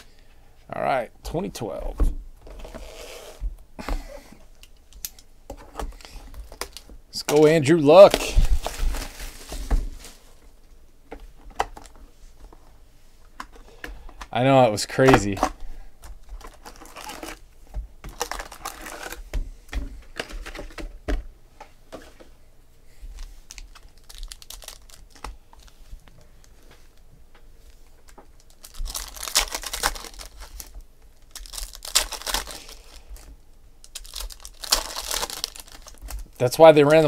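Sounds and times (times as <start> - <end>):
foil wrappers crinkling: 5.9 - 10.6, 14.9 - 17.4, 18.1 - 19.2, 23.1 - 27.0, 27.8 - 37.0.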